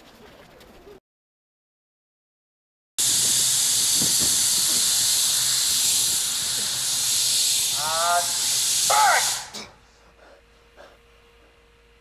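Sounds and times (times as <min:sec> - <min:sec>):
loud steady hiss: 0:03.0 - 0:09.8.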